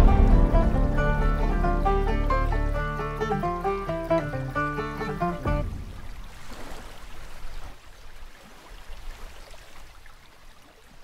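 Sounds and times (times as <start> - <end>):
banjo chord: 0.0 - 6.1
stream running over rocks: 0.0 - 11.0.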